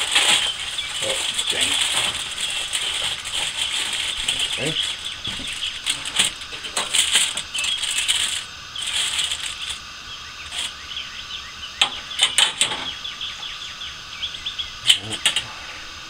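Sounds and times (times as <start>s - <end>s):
aluminium foil crinkling: 0.0s - 10.8s.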